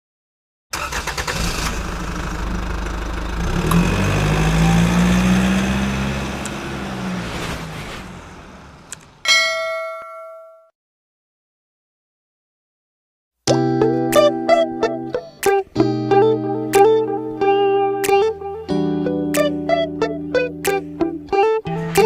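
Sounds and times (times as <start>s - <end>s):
engine-like sound effect: 1.3s - 9.0s
click: 8.9s - 9.1s
notification bell ding: 9.3s - 10.7s.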